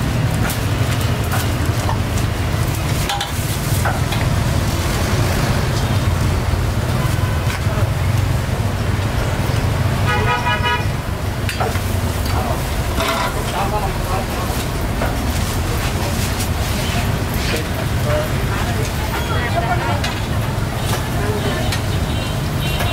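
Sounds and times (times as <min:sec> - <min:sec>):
road traffic rumble: 0:00.0 - 0:22.9
vehicle horn: 0:10.1 - 0:11.0, 0:21.4 - 0:22.9.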